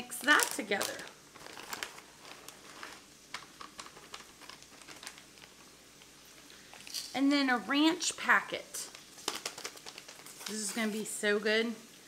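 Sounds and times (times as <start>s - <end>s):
cheese shreds pattering: 0.0s - 6.8s, 8.8s - 11.2s
plastic bag rustling: 0.0s - 7.1s, 8.7s - 11.2s.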